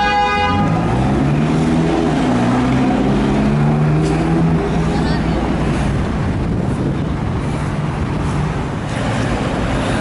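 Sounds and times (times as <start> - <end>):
car horn: 0.0 - 1.0
car engine low drone: 0.5 - 10.0.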